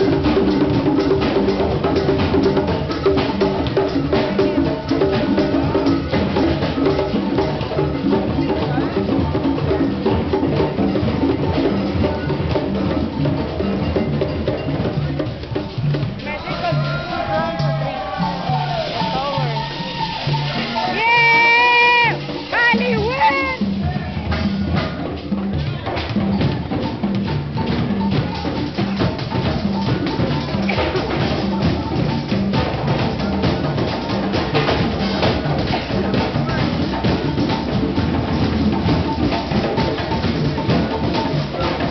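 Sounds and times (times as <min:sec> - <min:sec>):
conga drum played by hand: 0:00.0 - 0:41.9
drum circle hand drums: 0:00.0 - 0:41.9.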